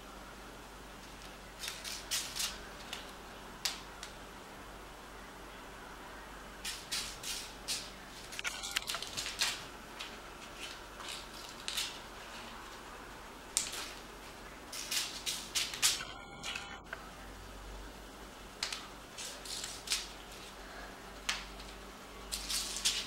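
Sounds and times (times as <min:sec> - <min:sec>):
tape ball crinkling on tile floor: 0:01.0 - 0:04.2, 0:06.7 - 0:12.6, 0:13.5 - 0:14.1, 0:14.7 - 0:16.6, 0:18.6 - 0:20.6, 0:21.2 - 0:23.0.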